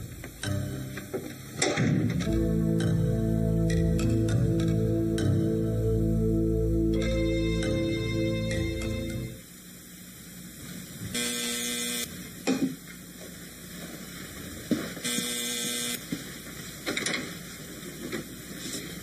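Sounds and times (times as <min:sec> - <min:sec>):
electric door buzzer: 0:11.2 - 0:12.1, 0:15.1 - 0:16.0.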